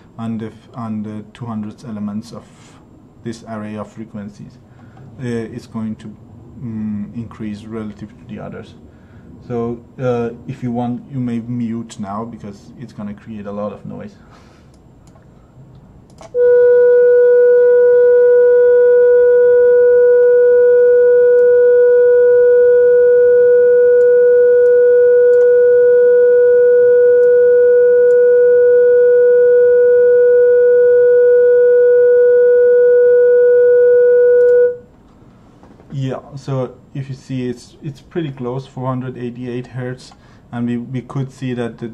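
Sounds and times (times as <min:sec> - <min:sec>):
click: 0:14.7 - 0:16.4, 0:24.0 - 0:25.5, 0:34.4 - 0:34.6
steady test tone: 0:16.1 - 0:35.0.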